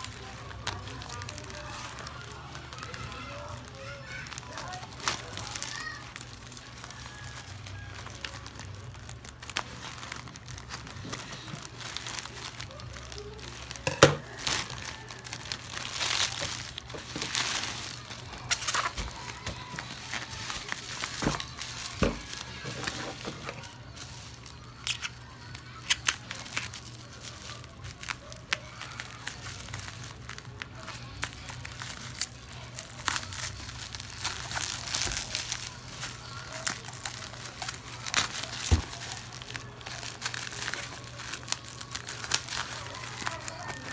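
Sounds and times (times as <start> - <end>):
plastic mailer and bubble wrap crinkling: 0.0 - 43.9
sharp crackles: 0.0 - 43.9.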